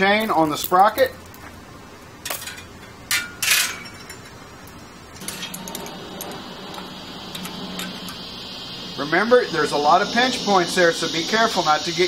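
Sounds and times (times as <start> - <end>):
steady low hum: 3.9 - 12.0.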